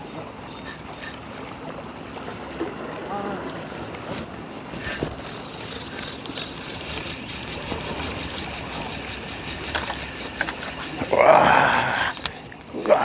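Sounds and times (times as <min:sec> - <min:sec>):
fishing reel gears ticking: 0:00.0 - 0:01.2, 0:04.7 - 0:13.0.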